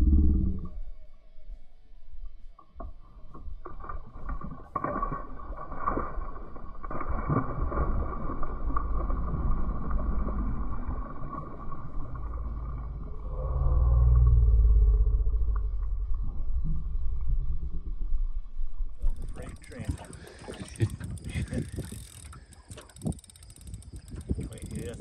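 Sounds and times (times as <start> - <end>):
boat motor rumbling: 0.0 - 0.9, 8.2 - 25.0
fish splashing water: 3.7 - 13.2.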